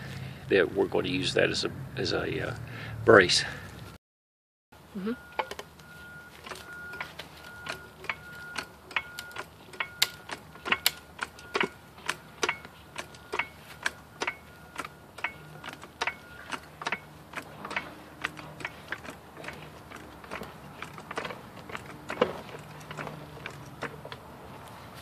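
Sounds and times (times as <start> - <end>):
hydraulic jack pumping clicks: 5.4 - 24.3.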